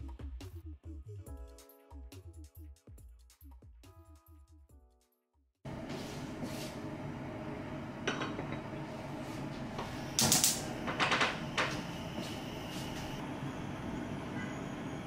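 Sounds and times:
gas hob igniter clicking: 0:10.2 - 0:11.8.

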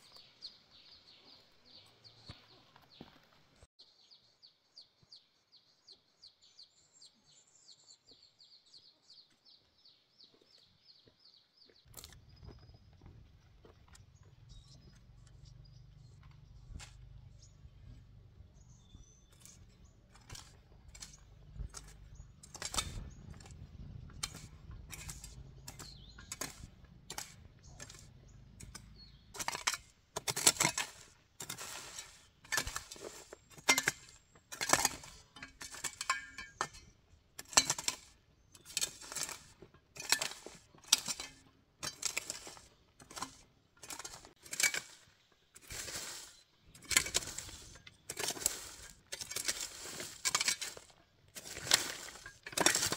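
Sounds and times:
hoe striking and scraping soil: 0:13.8 - 0:52.9.

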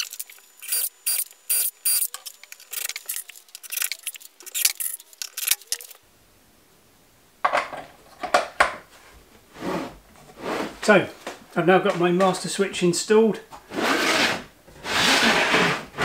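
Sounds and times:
cordless drill-driver: 0:00.2 - 0:02.2
metallic clinks and rattles: 0:02.1 - 0:06.0.

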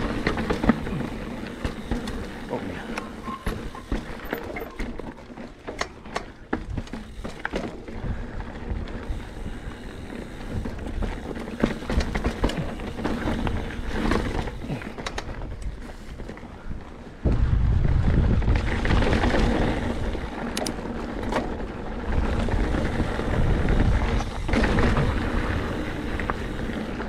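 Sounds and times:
bike rattling over rocks: 0:00.0 - 0:27.0
wind rumble on microphone: 0:16.6 - 0:20.4, 0:21.0 - 0:26.7.

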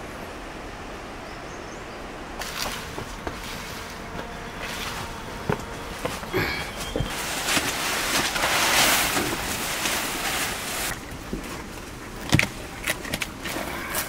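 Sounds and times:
leafy fodder rustling: 0:02.1 - 0:14.0
firewood sticks clicking: 0:02.4 - 0:14.0.

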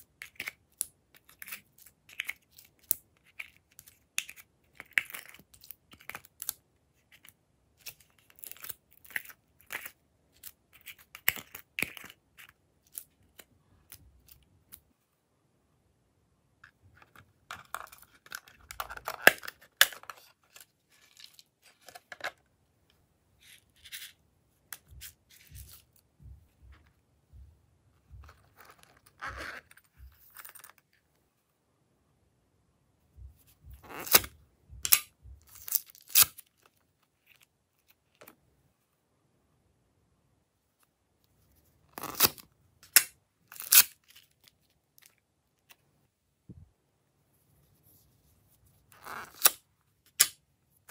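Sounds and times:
plastic containers clicking and scraping: 0:16.6 - 0:22.4.

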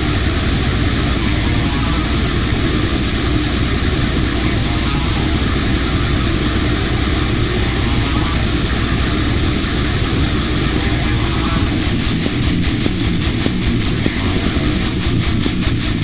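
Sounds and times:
distorted guitars: 0:00.0 - 0:16.0
fast drumming: 0:00.0 - 0:16.0.

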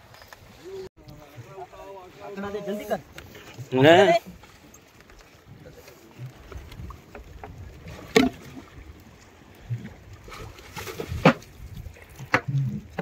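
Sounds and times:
faint water sloshing: 0:00.0 - 0:13.0
sharp knocks on boat: 0:08.1 - 0:08.4.

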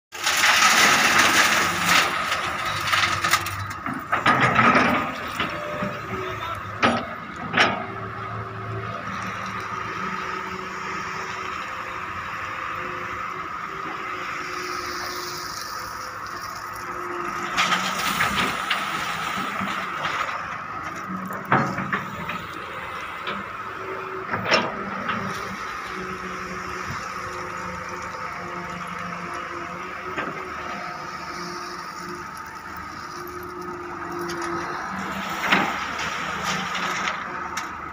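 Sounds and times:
gravel spilling into steel truck bed: 0:00.1 - 0:06.5, 0:14.8 - 0:22.9
gravel rattling into steel bed: 0:00.1 - 0:08.0, 0:15.3 - 0:23.5, 0:24.3 - 0:37.9
excavator diesel engine: 0:00.1 - 0:37.9.

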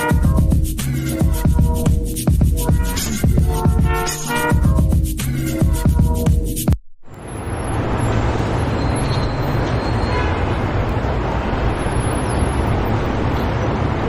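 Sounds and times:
traffic rumble: 0:07.1 - 0:14.0.

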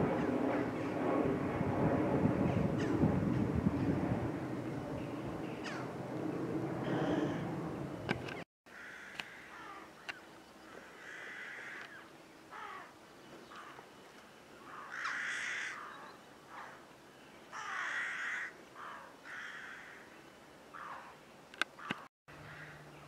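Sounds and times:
crows cawing: 0:05.6 - 0:05.9, 0:06.8 - 0:07.4, 0:08.7 - 0:12.9, 0:14.6 - 0:16.8, 0:17.5 - 0:20.1, 0:20.7 - 0:21.2, 0:21.8 - 0:22.9.

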